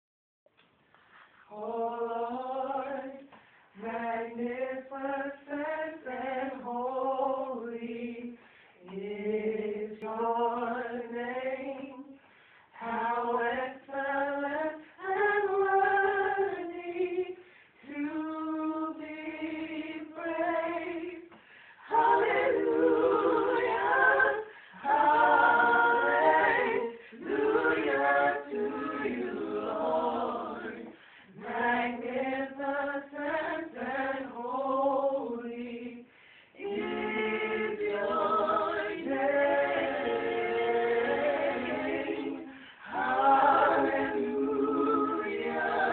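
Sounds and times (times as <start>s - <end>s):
unaccompanied voices singing: 1.2s - 45.9s.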